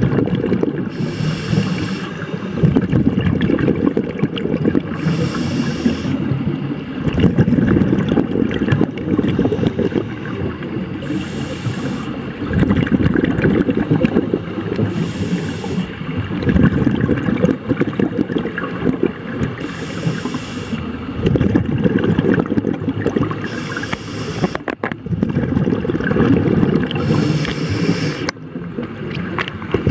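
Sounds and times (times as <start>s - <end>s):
exhaled bubbles rumbling: 0.0s - 29.9s
regulator inhalation hiss: 0.9s - 2.5s, 5.0s - 6.2s, 11.0s - 12.2s, 14.9s - 16.0s, 19.6s - 20.9s, 23.4s - 24.6s, 27.0s - 28.3s.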